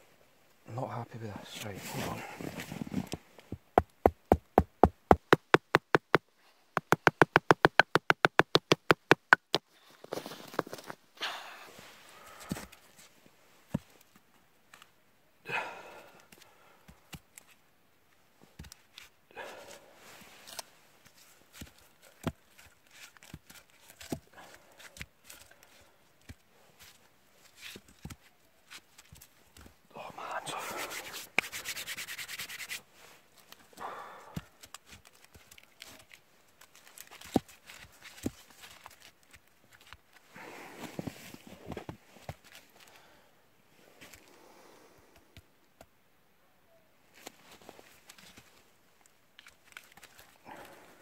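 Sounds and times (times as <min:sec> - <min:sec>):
wooden logs knocking: 0:03.5 - 0:06.2, 0:06.8 - 0:09.6.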